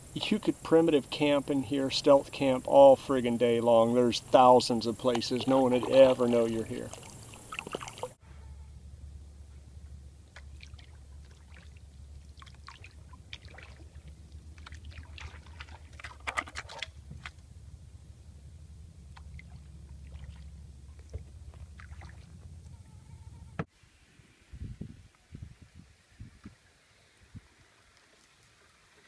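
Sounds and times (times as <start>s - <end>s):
steady low hum: 0.0s - 23.6s
paddle splashes and drips: 5.0s - 8.2s, 10.3s - 17.4s, 19.1s - 22.3s, 27.7s - 29.0s.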